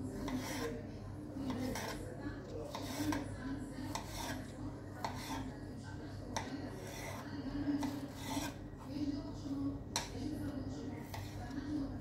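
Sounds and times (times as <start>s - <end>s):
knife slicing mango: 0.1s - 0.8s, 1.4s - 5.5s, 6.3s - 8.6s, 11.0s - 11.5s.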